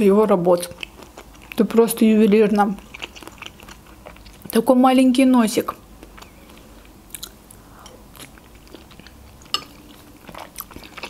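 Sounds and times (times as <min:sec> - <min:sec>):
mouth chewing wet smacks: 0:02.6 - 0:04.6, 0:06.0 - 0:11.0.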